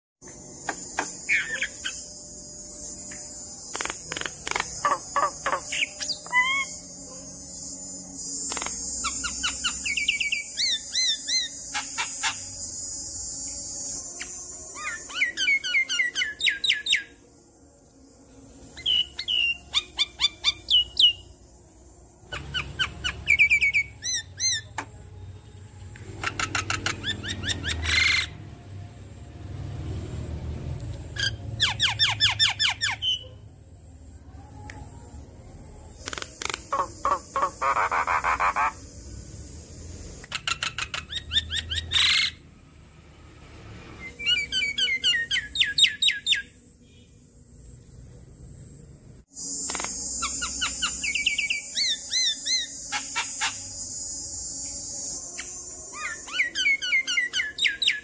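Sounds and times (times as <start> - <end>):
myna bird song: 0.2 - 17.3, 18.6 - 21.4, 22.2 - 28.5, 35.9 - 42.4, 44.0 - 47.2, 49.4 - 58.0.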